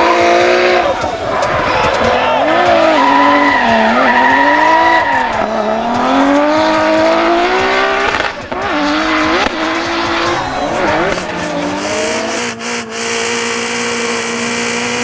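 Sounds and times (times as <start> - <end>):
car engine revving: 0.0 - 15.0
tyres squealing: 1.0 - 6.2.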